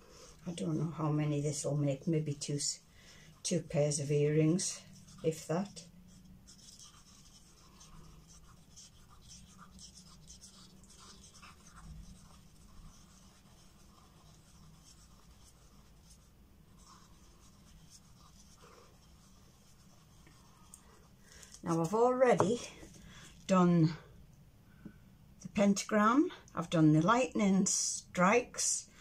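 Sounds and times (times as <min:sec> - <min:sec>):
low steady hum: 0:00.0 - 0:29.0
stick stirring resin in cup: 0:00.3 - 0:23.0.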